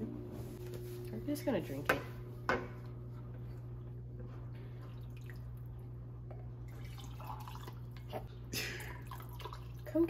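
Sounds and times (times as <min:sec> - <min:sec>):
steady low hum: 0:00.0 - 0:09.9
liquid trickling into glass mug: 0:06.7 - 0:08.1, 0:09.0 - 0:09.9.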